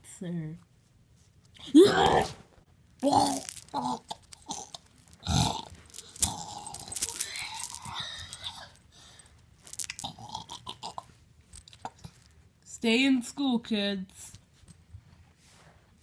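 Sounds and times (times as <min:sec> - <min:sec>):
person grunting: 0:01.7 - 0:02.4, 0:03.0 - 0:04.7
wet chewing and crunching: 0:03.0 - 0:08.7, 0:09.7 - 0:11.1.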